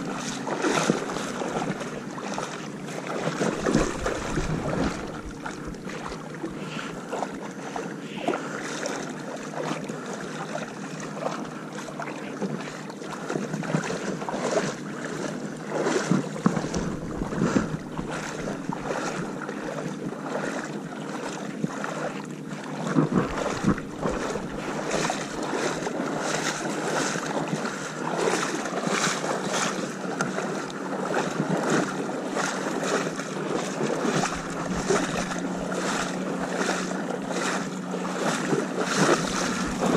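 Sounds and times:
water: 0:00.0 - 0:39.9
wind: 0:00.0 - 0:39.9
faint low hum: 0:03.4 - 0:07.2.

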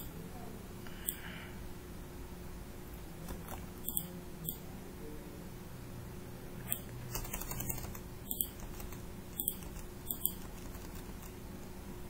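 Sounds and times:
computer keyboard keystrokes: 0:06.7 - 0:11.3.

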